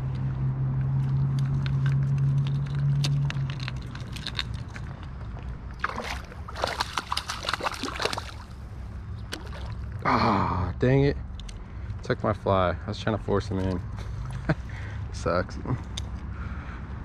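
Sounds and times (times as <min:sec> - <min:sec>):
fish splashing at surface: 0:05.8 - 0:08.6, 0:09.3 - 0:09.9.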